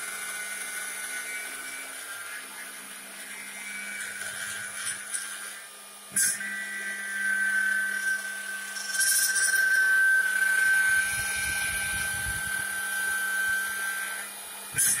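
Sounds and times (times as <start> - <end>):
high-pitched router cutter whine: 0.0 - 15.0
bit cutting wood: 6.2 - 15.0.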